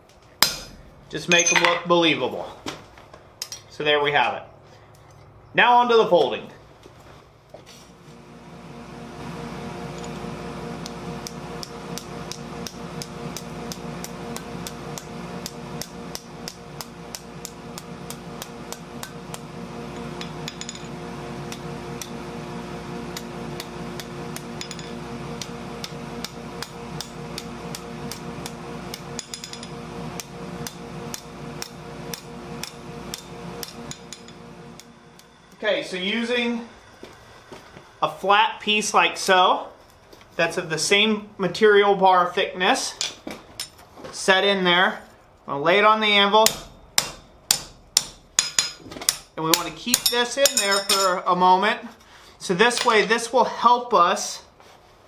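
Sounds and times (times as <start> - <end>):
steady hum: 0.0 - 5.6, 6.2 - 54.6
hammer striking steel on anvil: 0.4 - 1.9, 20.0 - 20.9, 23.2 - 29.8, 30.6 - 35.3, 46.4 - 51.2.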